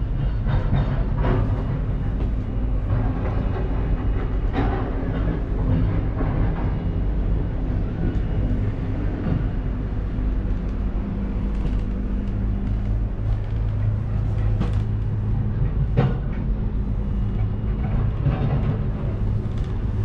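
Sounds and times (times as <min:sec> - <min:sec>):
cable car low rumble: 0:00.0 - 0:20.0
light clicks and rattles: 0:10.0 - 0:20.0.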